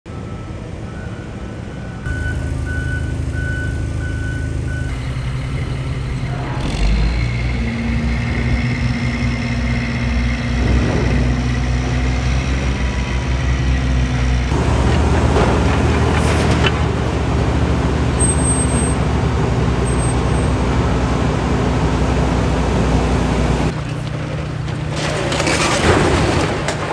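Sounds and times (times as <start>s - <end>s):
reversing alarm beeping: 0.1s - 5.9s, 18.2s - 19.0s
diesel excavator engine: 0.1s - 26.9s
dump truck idling: 0.1s - 26.9s.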